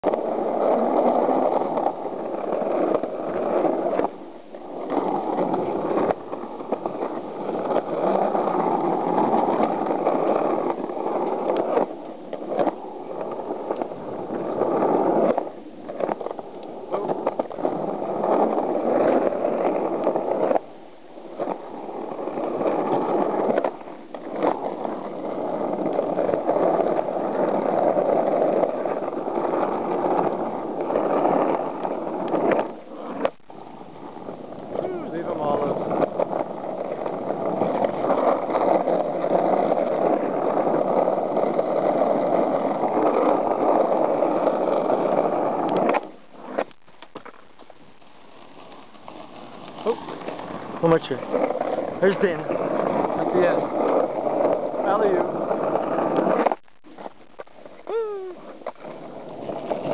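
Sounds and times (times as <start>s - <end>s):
skateboard wheels rolling on concrete: 0.0s - 59.9s.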